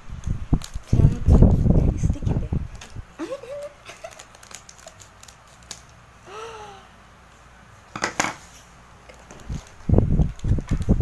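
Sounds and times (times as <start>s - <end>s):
packaging crinkling: 3.4s - 6.0s
scissors snipping plastic: 3.9s - 5.9s.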